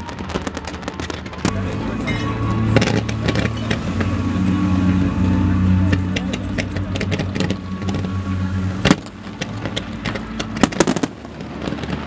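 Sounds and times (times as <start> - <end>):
fireworks crackling and popping: 0.0 - 4.3, 6.4 - 12.0
low steady hum: 1.5 - 12.0
fireworks bangs: 6.6 - 12.0.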